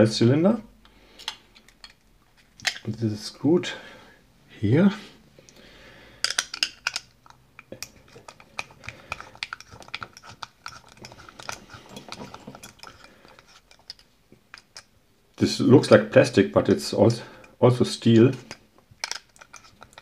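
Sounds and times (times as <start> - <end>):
metallic clicks and scrapes: 1.1 - 3.0, 6.2 - 15.0, 18.3 - 20.0.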